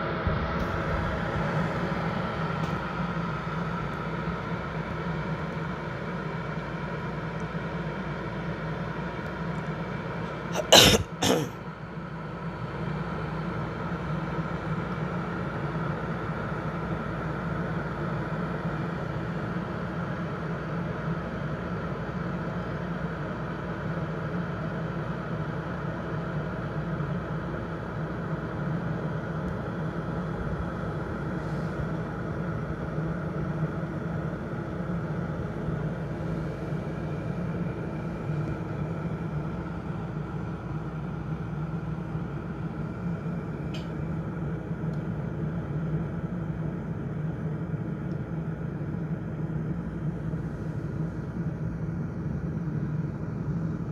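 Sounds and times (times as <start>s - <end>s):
electric kettle heating water: 35.1s - 49.1s.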